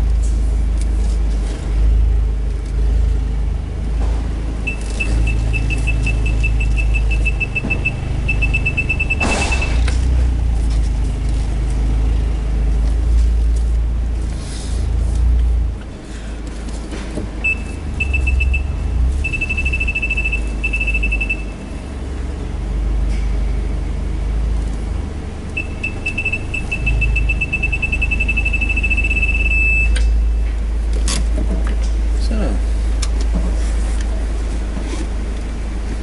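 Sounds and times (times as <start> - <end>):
car engine rumble: 0.0 - 36.0
parking sensor beeping: 4.6 - 10.0, 17.4 - 21.9, 25.5 - 30.6.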